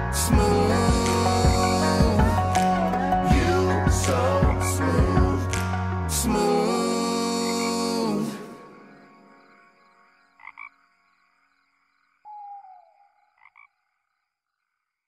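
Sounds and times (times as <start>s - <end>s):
song ending: 0.0s - 8.8s.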